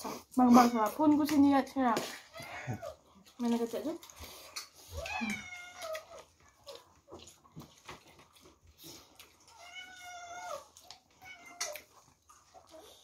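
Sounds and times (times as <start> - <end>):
soft clicks of eating from plates: 0.8 - 13.0
cat meowing: 4.9 - 6.2, 9.5 - 11.9.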